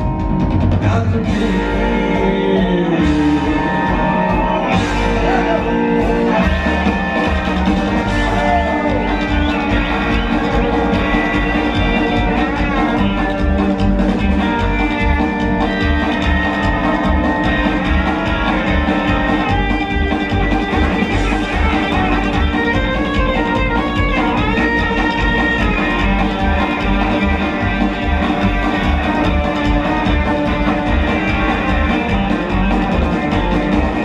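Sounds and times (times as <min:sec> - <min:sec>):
drum beat: 0:00.0 - 0:34.0
electric guitar lead lines: 0:00.0 - 0:34.0
upright bass: 0:00.0 - 0:34.0.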